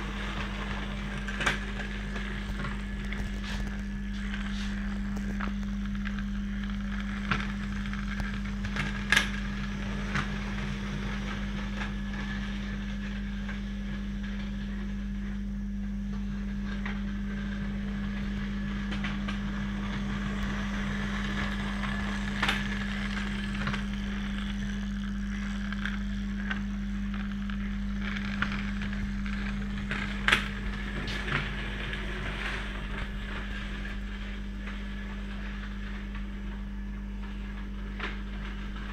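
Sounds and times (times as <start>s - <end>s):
model train humming: 17.6s - 35.6s.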